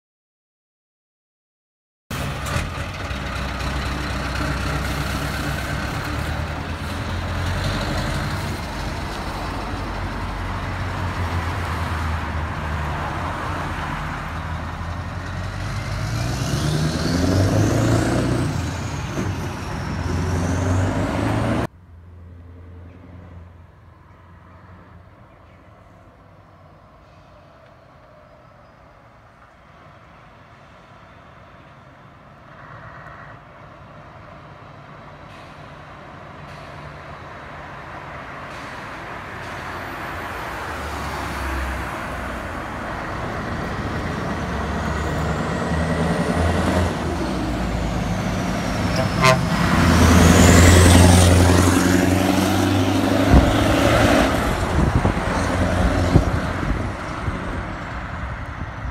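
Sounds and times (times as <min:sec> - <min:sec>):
diesel lorry driving past: 0:02.1 - 0:26.0, 0:34.2 - 0:58.9.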